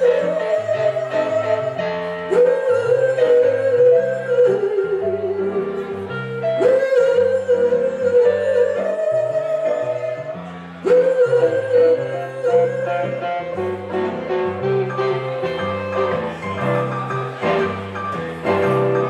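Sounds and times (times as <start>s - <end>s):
bass line: 9.4s - 19.0s.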